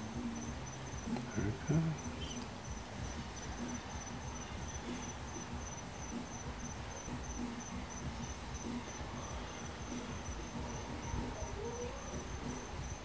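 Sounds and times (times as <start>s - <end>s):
cricket chirping: 0.0s - 13.0s.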